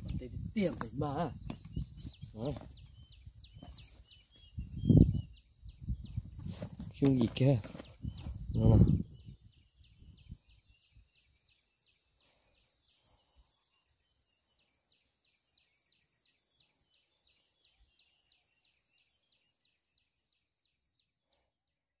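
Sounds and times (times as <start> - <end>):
insect trilling: 0.0 - 21.1
insect ticking chirp: 0.0 - 22.0.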